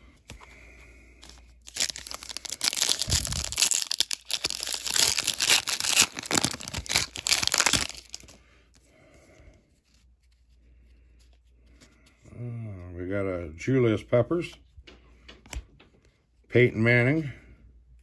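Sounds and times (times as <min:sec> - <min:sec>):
wrapper tearing and crinkling: 0:01.2 - 0:08.4.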